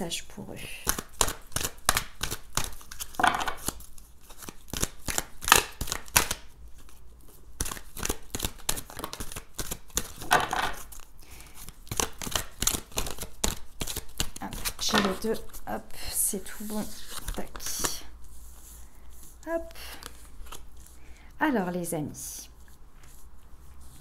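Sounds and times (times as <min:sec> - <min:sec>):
cards shuffling: 0:00.8 - 0:15.7, 0:16.4 - 0:21.0
cards swishing: 0:16.5 - 0:21.0.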